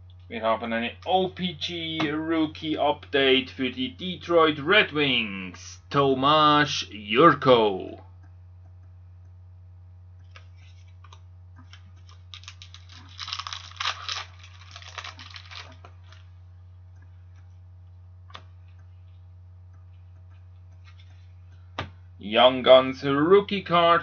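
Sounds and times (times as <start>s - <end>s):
low steady hum: 0.0s - 24.0s
card pack wrapper crackling: 11.0s - 16.3s.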